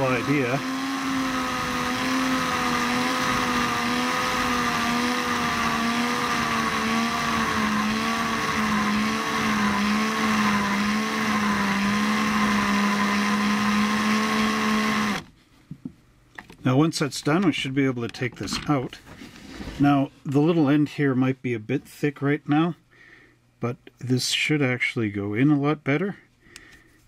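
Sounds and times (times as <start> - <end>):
cordless drill motor humming: 0.0 - 15.3.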